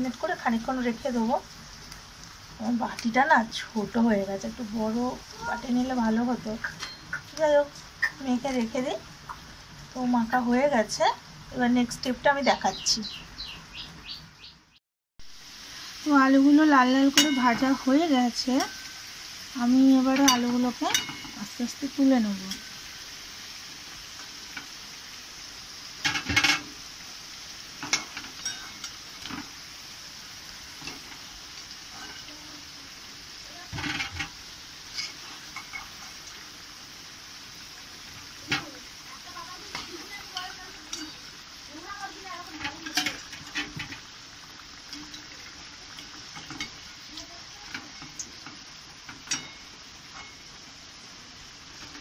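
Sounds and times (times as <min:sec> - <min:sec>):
potatoes sizzling in oil: 0:00.0 - 0:52.0
spatula scraping and clattering pan: 0:06.6 - 0:07.4, 0:17.1 - 0:19.1, 0:20.0 - 0:21.6, 0:26.0 - 0:26.8, 0:27.8 - 0:29.6, 0:30.8 - 0:31.3, 0:31.9 - 0:32.4, 0:33.6 - 0:36.2, 0:38.1 - 0:41.3, 0:42.4 - 0:44.2, 0:44.8 - 0:46.9, 0:47.6 - 0:50.6, 0:51.7 - 0:52.0
metal spatula scraping pan: 0:31.9 - 0:32.3, 0:33.7 - 0:36.0.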